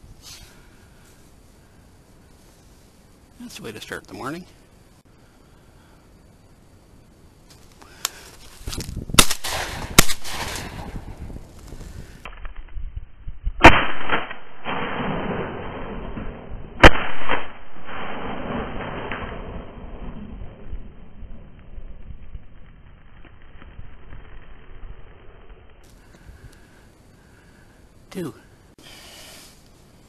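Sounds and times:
shotgun shots: 9.2 - 11.0, 13.6 - 19.5.

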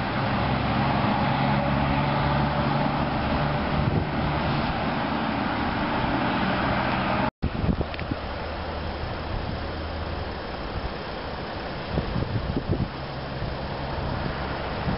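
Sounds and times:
car passing: 0.0 - 7.3
low engine drone: 0.0 - 14.9.

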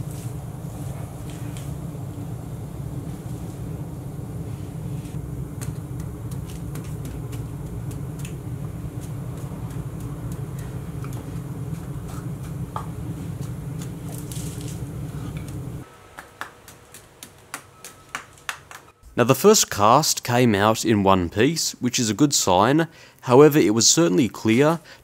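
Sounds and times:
steady low rumble: 0.0 - 15.9.

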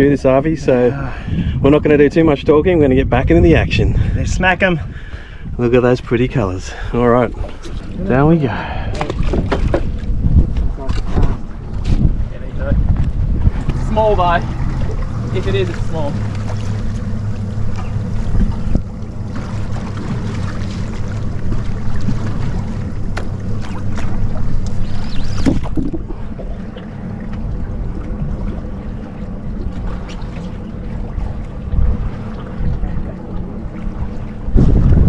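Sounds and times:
boat rumble: 0.0 - 35.0
wind on microphone: 1.1 - 6.3, 7.2 - 15.4, 16.2 - 20.2, 23.6 - 26.5, 31.0 - 35.0.

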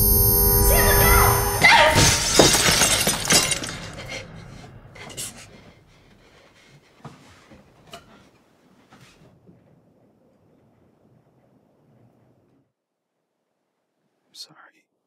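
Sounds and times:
drinking glass shattering: 1.6 - 4.2
glass pieces clinking: 1.9 - 4.1.

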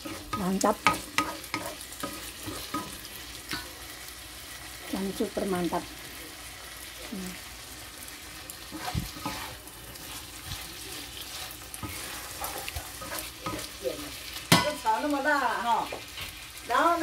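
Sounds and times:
wooden spatula scraping a pan: 0.0 - 3.6, 8.6 - 16.9
food frying in a wok: 0.0 - 17.0.

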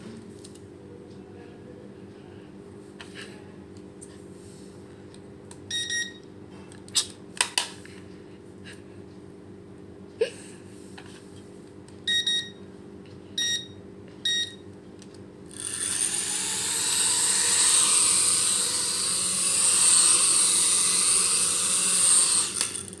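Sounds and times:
short electronic beeps: 5.7 - 6.2, 12.1 - 12.6, 13.4 - 14.6
drone propeller motors whirring: 15.5 - 23.0.

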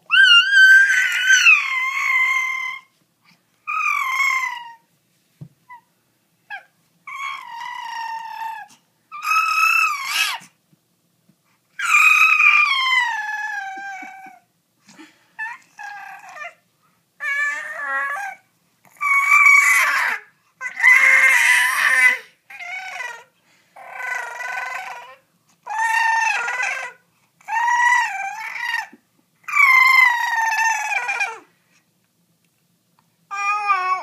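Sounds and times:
infant cooing and squealing: 0.1 - 2.9, 3.7 - 4.8, 6.5 - 10.5, 11.8 - 14.5, 15.4 - 16.6, 17.2 - 31.5, 33.3 - 34.0.

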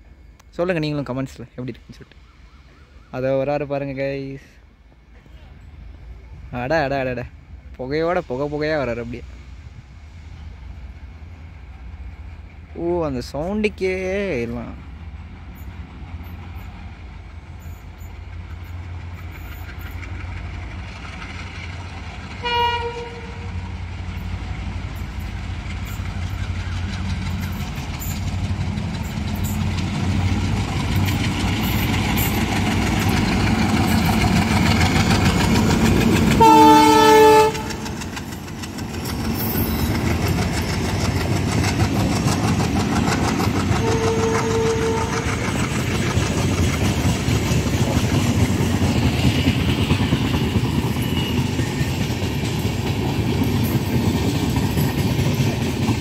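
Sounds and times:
diesel locomotive engine rumble: 0.0 - 56.0
train wheels clicking over rail joints: 10.6 - 56.0
train horn blasts: 22.4 - 23.5, 36.4 - 37.9, 43.8 - 45.3.

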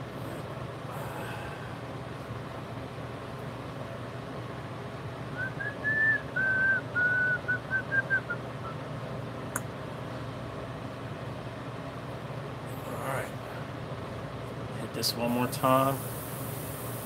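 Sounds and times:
low mechanical hum: 0.0 - 17.0
person whistling a tune: 5.4 - 8.8.

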